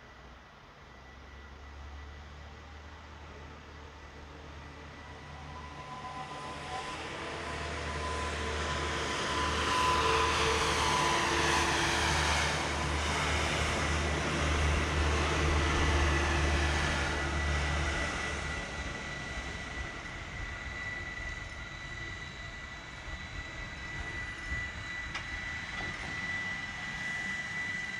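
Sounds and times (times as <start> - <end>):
train passing: 0.1 - 27.9.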